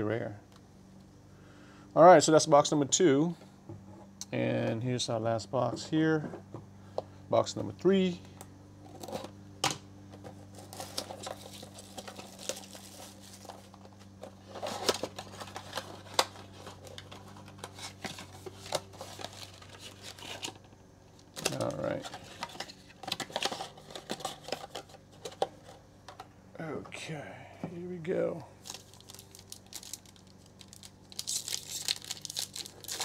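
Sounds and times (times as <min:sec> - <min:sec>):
plastic wrap tearing and crinkling: 0:10.4 - 0:20.6, 0:28.6 - 0:33.0.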